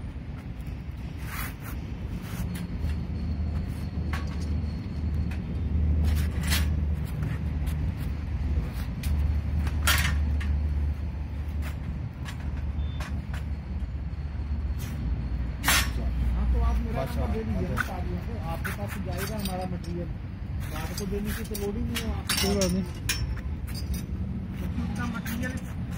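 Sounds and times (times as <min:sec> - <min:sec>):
metal tube clanking and scraping: 0:06.0 - 0:06.8, 0:09.7 - 0:10.6, 0:20.6 - 0:24.2.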